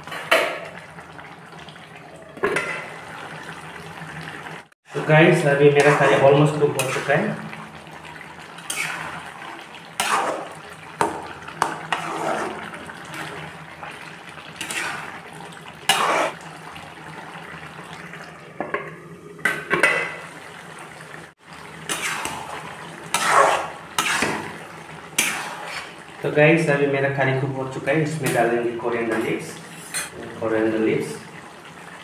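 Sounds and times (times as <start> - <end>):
curry bubbling: 0.0 - 32.0
spatula scraping a wok: 5.8 - 7.2, 8.7 - 9.2, 10.0 - 10.5, 11.8 - 12.8, 14.6 - 15.2, 15.9 - 16.4, 21.9 - 22.5, 23.1 - 24.4, 25.2 - 26.0, 29.8 - 30.1.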